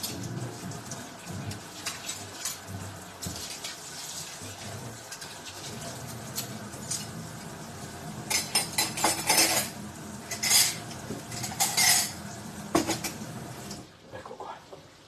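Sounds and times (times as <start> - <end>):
cutlery and dishes clattering: 1.8 - 3.7, 8.3 - 12.2, 12.8 - 13.2.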